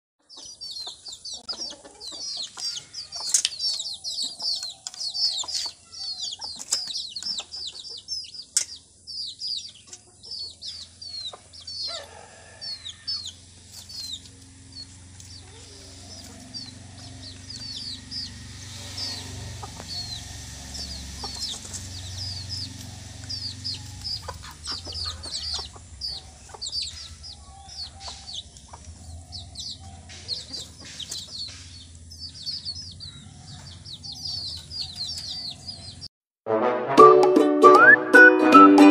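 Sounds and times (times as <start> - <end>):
chicks peeping and clucking: 0.2 - 36.1
low rumble: 13.5 - 30.6.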